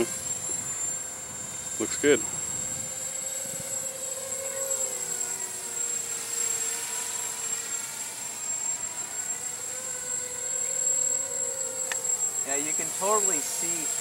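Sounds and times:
quadcopter buzzing whine: 0:00.0 - 0:14.0.

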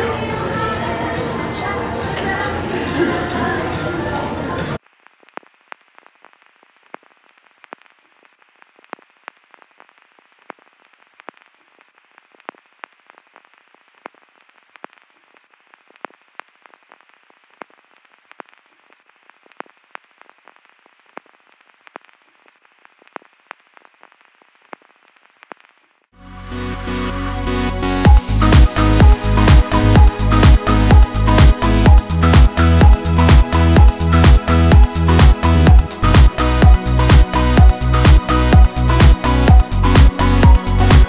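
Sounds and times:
irregular clicks and crackles: 0:04.8 - 0:26.0.

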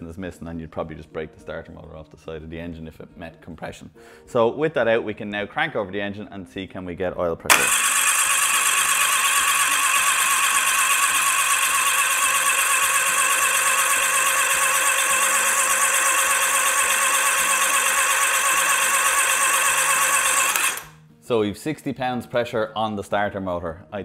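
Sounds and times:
starter motor cranking engine: 0:07.5 - 0:21.0.

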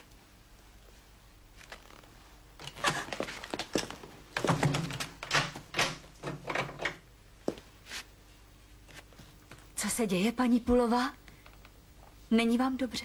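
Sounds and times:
loud knocks and thuds: 0:04.4 - 0:06.6.

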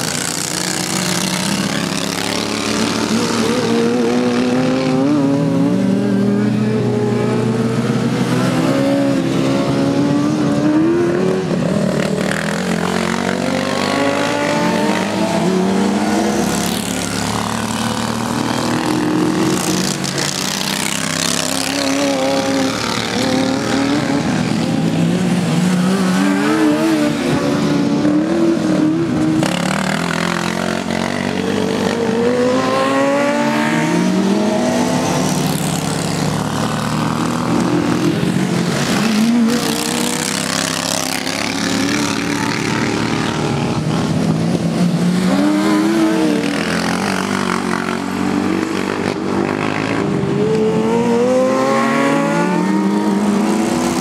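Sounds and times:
lawn mower engines revving: 0:00.0 - 0:54.0.

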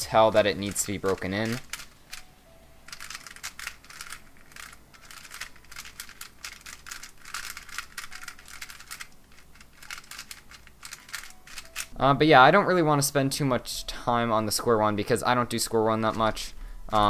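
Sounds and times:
plastic puzzle clicks and clacks: 0:00.3 - 0:02.3, 0:02.9 - 0:11.9, 0:16.0 - 0:17.0.

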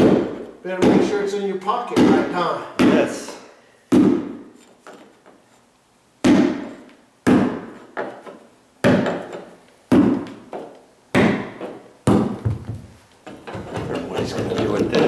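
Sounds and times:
rubber mallet heavy dull blows: 0:00.0 - 0:01.2, 0:03.9 - 0:04.5, 0:06.2 - 0:07.8, 0:09.9 - 0:10.4, 0:11.1 - 0:12.9.

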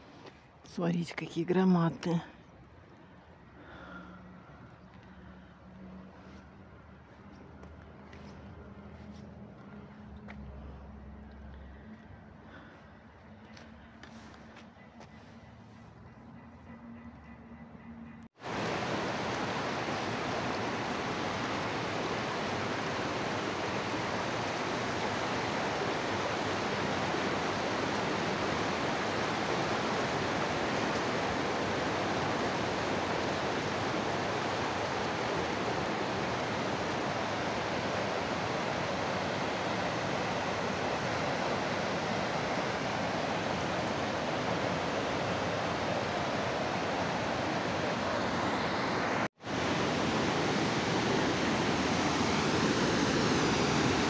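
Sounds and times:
water rushing over waterfall: 0:18.4 - 0:54.0.

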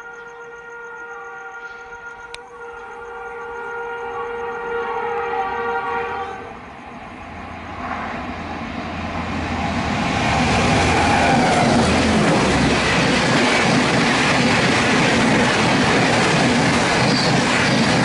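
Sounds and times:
locomotive horn: 0:00.0 - 0:06.6
train rushing past: 0:04.8 - 0:18.0.

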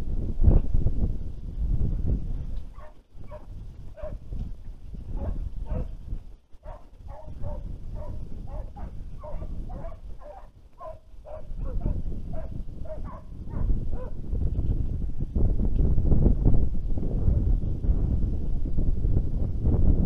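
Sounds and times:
wind rumble on microphone: 0:00.0 - 0:20.0
hounds baying: 0:02.7 - 0:04.2, 0:05.1 - 0:06.0, 0:06.6 - 0:14.2.

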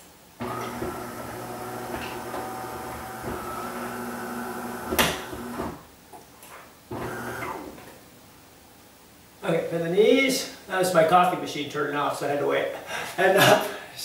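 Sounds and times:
coffee machine humming and hissing: 0:00.4 - 0:05.8, 0:06.9 - 0:07.7.

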